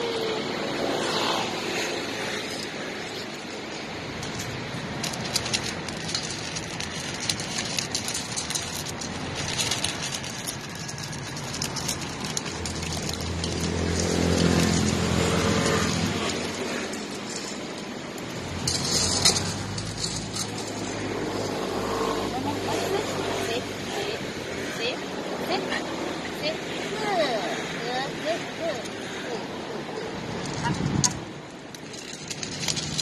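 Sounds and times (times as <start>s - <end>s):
vehicle engine passing: 0.0s - 4.2s, 8.5s - 26.7s
street traffic: 0.0s - 33.0s
dogs eating from metal bowl: 2.6s - 23.4s.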